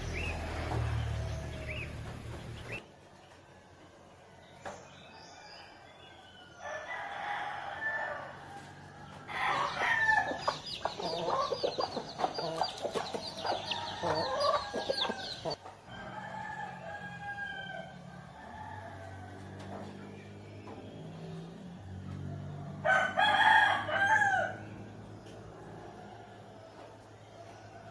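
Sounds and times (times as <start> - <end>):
chick peeping: 0.0 - 2.8, 8.6 - 15.7
chickens clucking: 0.0 - 3.5, 8.5 - 16.2
rooster crowing: 4.4 - 20.2, 22.2 - 27.9.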